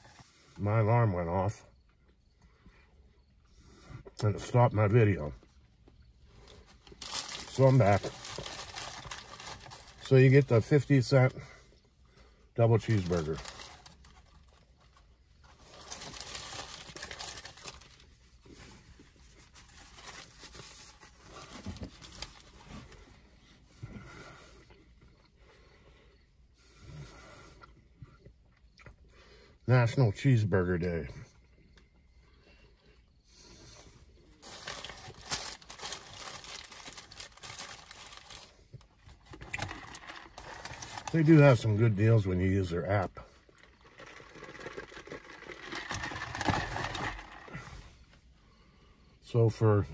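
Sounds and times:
paper wrapper crinkling: 0:06.8 - 0:10.8, 0:12.6 - 0:18.2, 0:19.3 - 0:23.0, 0:34.4 - 0:38.6, 0:39.2 - 0:41.9, 0:43.5 - 0:47.6.

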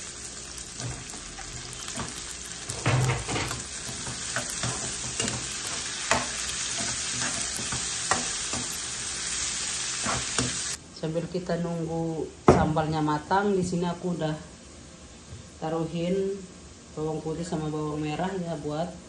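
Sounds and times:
vegetables sizzling in hot oil: 0:00.0 - 0:10.8.

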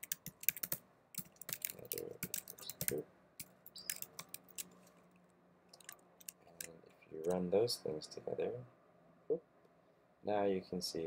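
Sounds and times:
typing on a keyboard: 0:00.0 - 0:04.7, 0:05.8 - 0:06.7.

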